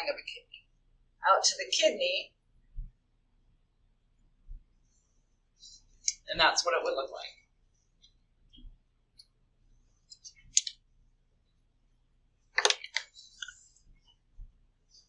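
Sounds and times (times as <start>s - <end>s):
sharp clicks and knocks: 12.6s - 13.1s.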